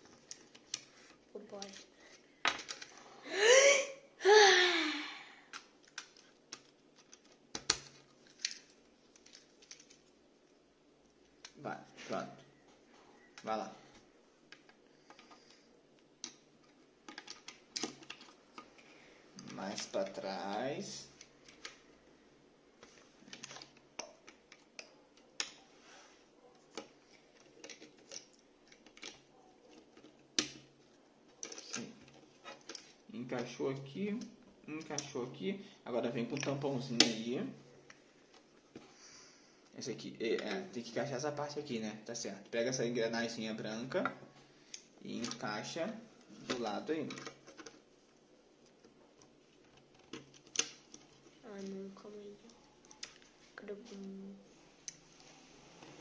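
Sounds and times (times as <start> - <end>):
plastic parts clicking: 1.5 - 3.0, 5.5 - 10.1, 14.5 - 21.8, 26.5 - 30.7, 31.3 - 33.5, 44.0 - 45.6, 46.5 - 47.9, 48.6 - 51.3.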